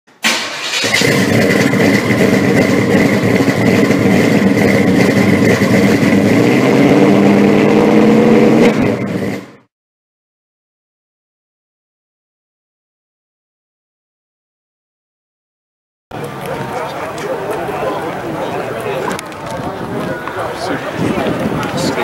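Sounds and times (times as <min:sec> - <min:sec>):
car engine running: 0:00.7 - 0:09.7.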